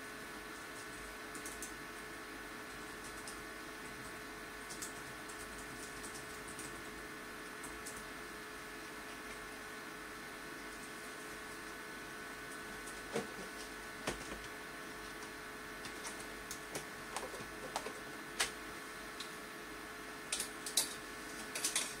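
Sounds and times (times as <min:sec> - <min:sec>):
electrical hum: 0:00.0 - 0:22.0
small clicks and ticks: 0:00.5 - 0:01.8, 0:02.7 - 0:08.1, 0:20.3 - 0:22.0.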